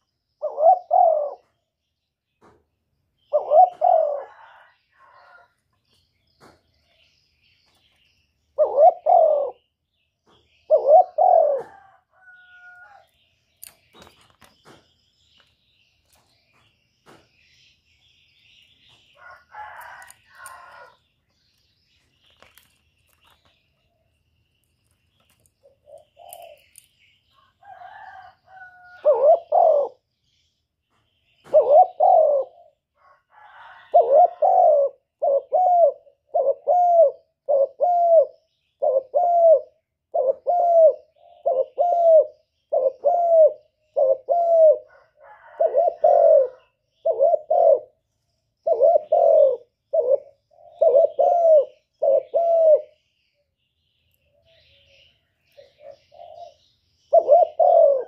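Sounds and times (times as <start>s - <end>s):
dove cooing: 0.4s - 1.7s, 3.2s - 5.6s, 8.5s - 13.1s, 25.6s - 26.8s, 27.6s - 30.1s, 31.4s - 48.0s, 48.6s - 53.2s, 54.4s - 58.0s.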